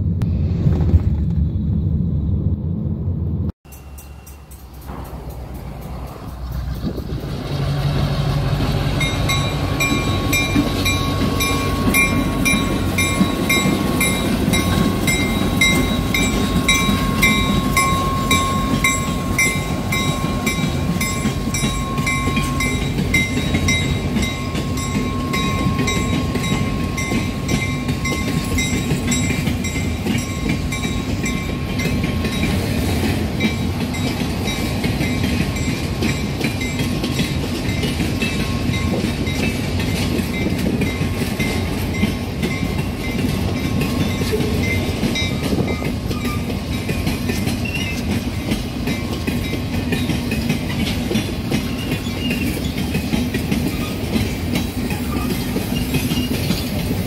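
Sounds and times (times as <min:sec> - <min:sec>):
diesel locomotive rumbling past: 0:00.0 - 0:57.0
bell ringing quickly: 0:03.7 - 0:06.8, 0:09.0 - 0:32.6
wheel clatter on rails: 0:04.3 - 0:57.0.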